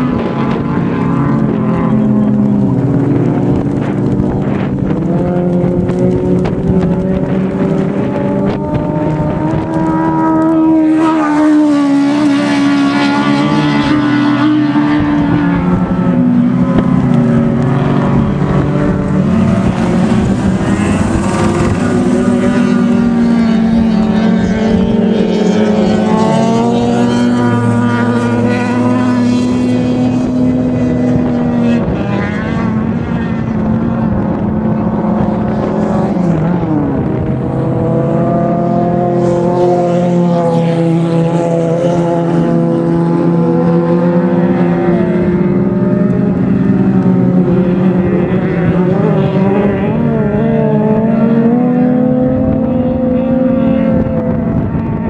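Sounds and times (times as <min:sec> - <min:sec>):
racing car engines revving: 0:00.0 - 0:55.0.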